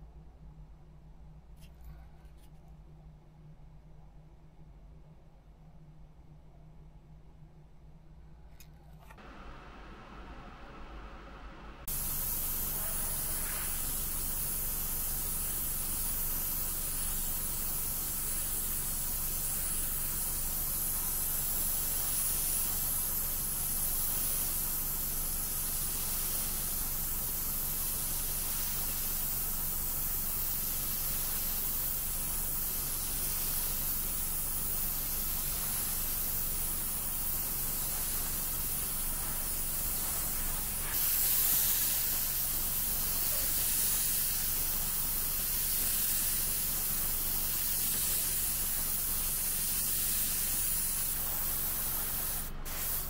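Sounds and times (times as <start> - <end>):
faint low hum: 0.0 - 11.9
airbrush hissing: 11.8 - 53.0.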